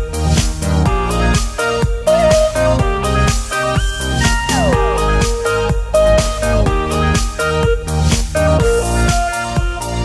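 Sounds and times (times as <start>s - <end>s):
upbeat electronic music: 0.0s - 10.0s
plucked guitar notes: 1.0s - 7.8s.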